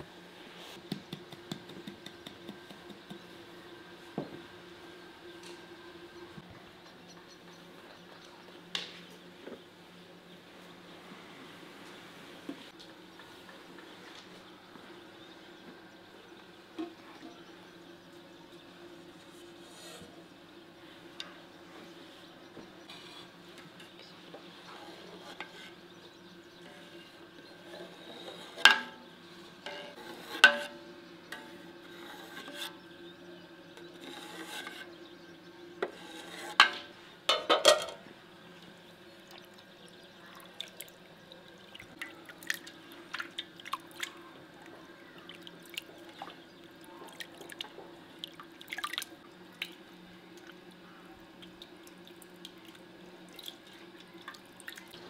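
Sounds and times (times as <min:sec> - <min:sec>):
whey splashing and dripping: 0:39.2 - 0:50.6, 0:51.3 - 0:55.0.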